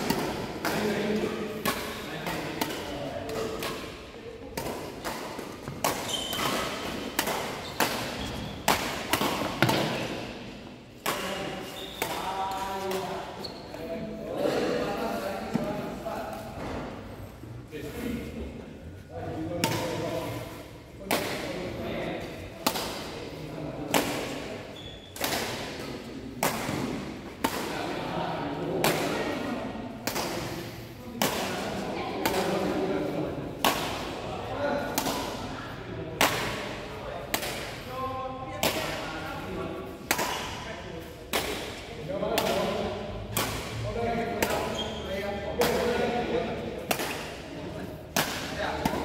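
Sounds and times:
rackets hitting shuttlecock: 0.0 - 13.4, 23.8 - 27.8, 28.8 - 32.8, 33.4 - 34.2, 36.1 - 37.8, 39.8 - 46.0, 46.8 - 49.0.

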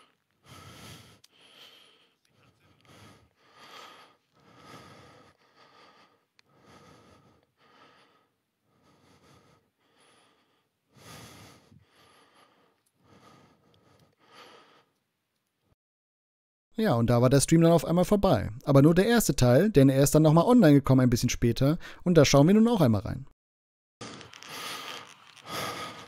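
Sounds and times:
man breathing heavily: 0.0 - 15.0, 24.4 - 26.0.

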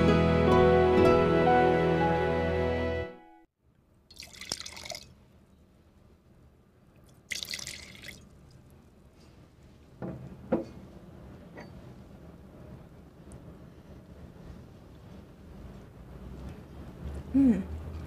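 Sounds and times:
wine pouring into glass: 4.1 - 5.1, 7.3 - 8.3.

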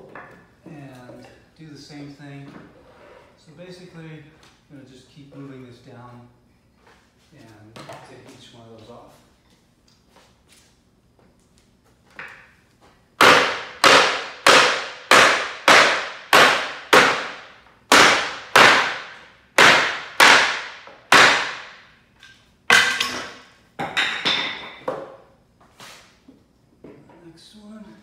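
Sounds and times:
sledgehammer striking wood: 13.2 - 21.8, 22.7 - 23.4.

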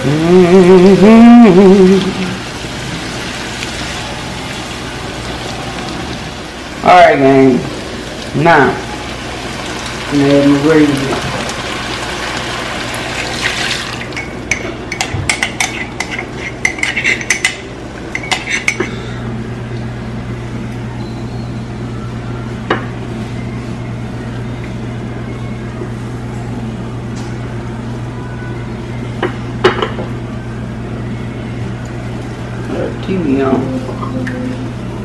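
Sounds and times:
utensil scraping a skillet: 15.4 - 17.5, 18.2 - 19.0.

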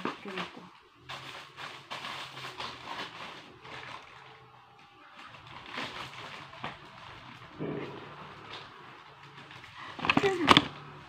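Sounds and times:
faint low hum: 0.0 - 11.0
items rustling and knocking on table: 5.2 - 11.0.

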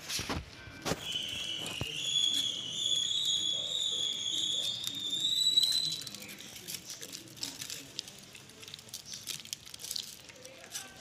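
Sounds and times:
high whistle-like tone: 0.7 - 6.5.

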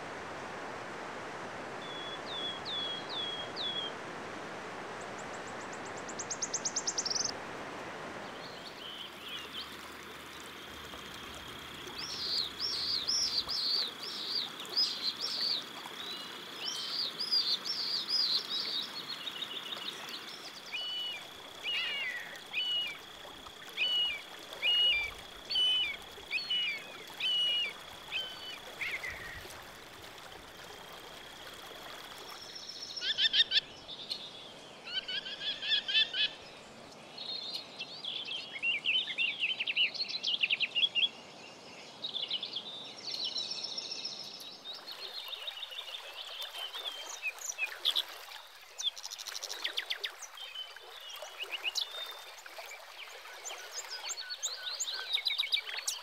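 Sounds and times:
faint steady hiss: 0.0 - 56.0
songbirds chirping: 4.8 - 7.4, 8.2 - 56.0.

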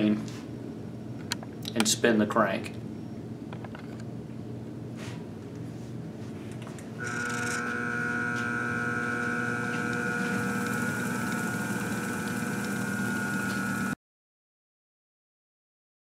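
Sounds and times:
balancing machine spinning: 7.0 - 14.0.

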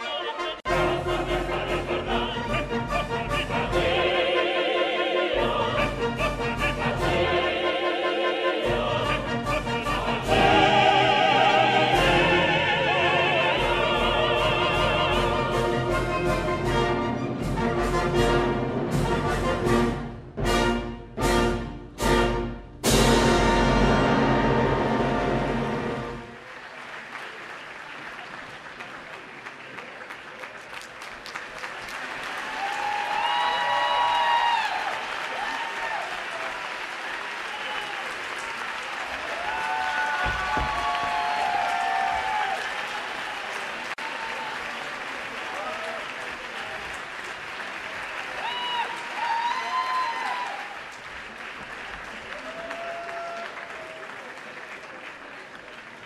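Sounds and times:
audience applause: 25.8 - 56.0.

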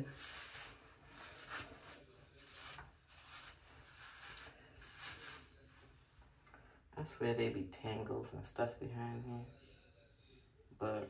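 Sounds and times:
hairbrush rasping through hair: 0.0 - 5.5.

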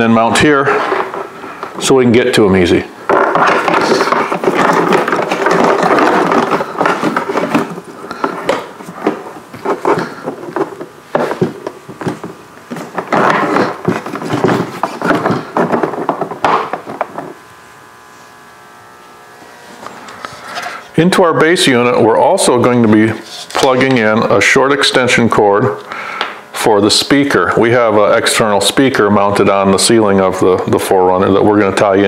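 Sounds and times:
faint steady hum: 0.0 - 32.0
cable rubbing on plastic: 3.1 - 18.4.

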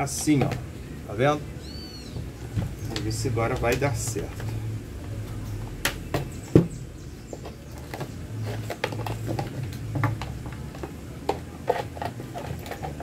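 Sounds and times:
plastic parts clicking and scraping: 7.3 - 13.0.

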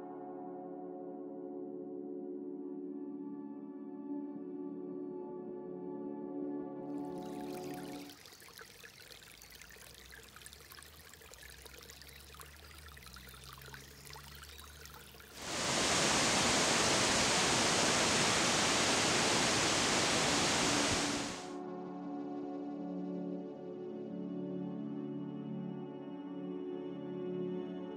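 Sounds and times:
brook trickling over stones: 7.2 - 21.5
loud rush of water: 15.4 - 21.6.

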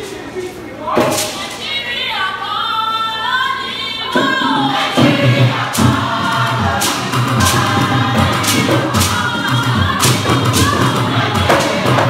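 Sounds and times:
group of voices singing: 0.8 - 12.0.

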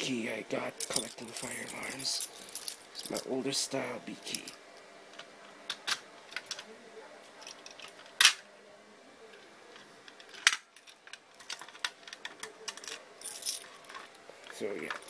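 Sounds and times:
keys jingling: 0.8 - 3.3, 10.2 - 15.0.

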